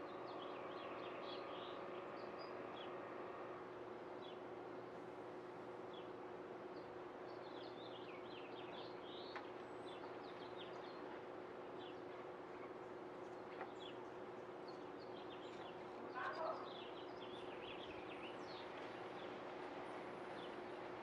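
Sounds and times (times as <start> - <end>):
small birds chirping: 11.8 - 19.3.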